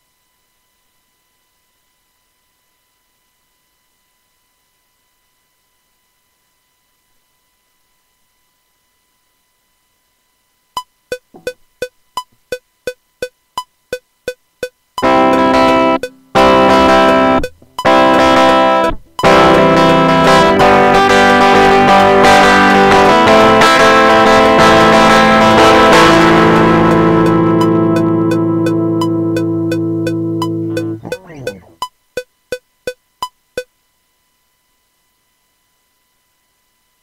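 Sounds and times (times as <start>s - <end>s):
electric guitar strumming chords: 15.0s - 31.8s
metronome clicking: 26.8s - 31.9s.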